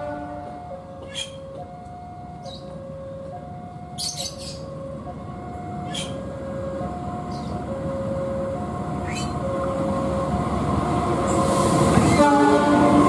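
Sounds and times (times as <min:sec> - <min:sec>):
two-tone crossing alarm: 0:00.0 - 0:10.6
diesel locomotive rumble: 0:00.0 - 0:13.0
birds chirping: 0:02.4 - 0:02.8, 0:03.9 - 0:04.8, 0:05.8 - 0:06.2, 0:07.1 - 0:07.8.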